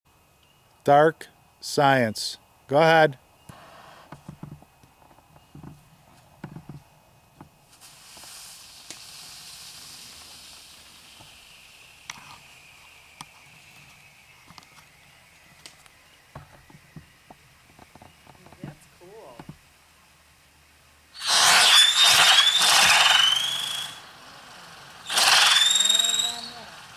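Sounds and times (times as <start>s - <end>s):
fountain firework hissing: 2.8s - 4.2s, 7.6s - 26.9s
sharp pops: 7.4s - 14.9s, 21.2s - 24.1s, 24.9s - 26.6s
falling tone: 21.2s - 26.8s.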